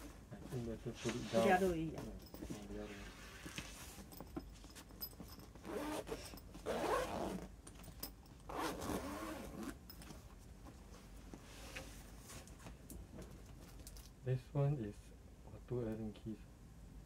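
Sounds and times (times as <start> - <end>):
zipper being pulled open: 5.3 - 7.5, 8.5 - 9.9.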